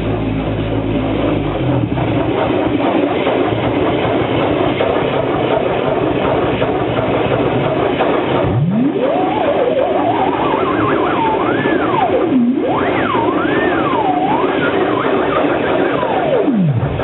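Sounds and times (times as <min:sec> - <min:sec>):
air rush and motor noise: 0:00.0 - 0:17.0
sliding pitched wail: 0:08.3 - 0:17.0.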